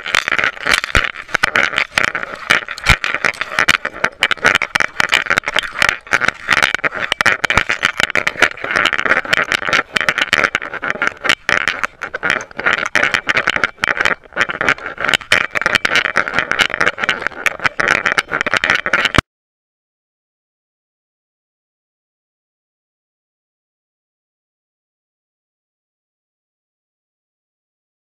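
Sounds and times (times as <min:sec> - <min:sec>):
camera housing rattling: 0:00.0 - 0:19.2.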